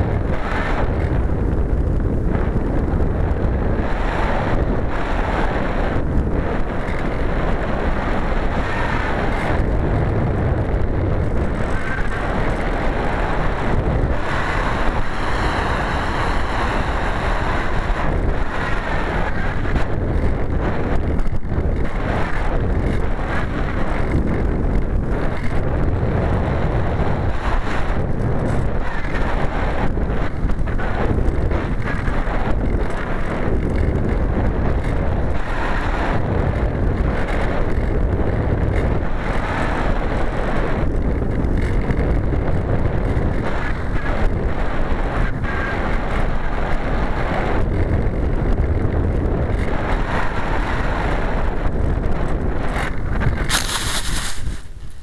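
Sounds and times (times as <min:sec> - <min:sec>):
wind rushing over microphone: 0:00.0 - 0:55.0
plane hitting grass: 0:52.7 - 0:55.0.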